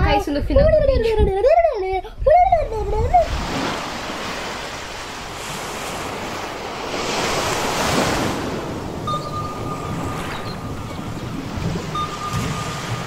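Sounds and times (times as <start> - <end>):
ocean waves washing: 3.0 - 13.0
thin high tone: 9.0 - 13.0.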